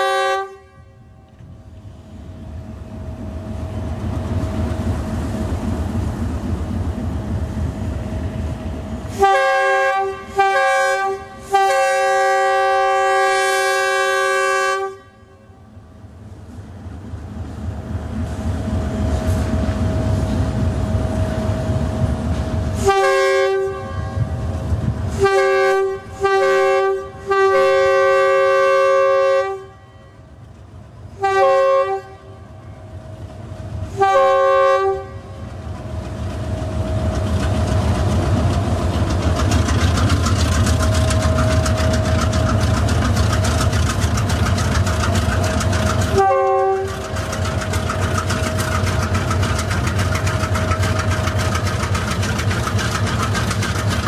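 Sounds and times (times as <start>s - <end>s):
locomotive horn blasts: 0.0s - 1.4s, 9.1s - 15.7s, 22.8s - 24.4s, 25.1s - 30.3s, 31.2s - 32.7s, 33.9s - 35.5s, 46.1s - 47.0s
locomotive engine running: 1.3s - 14.6s, 15.6s - 29.4s, 32.2s - 54.0s.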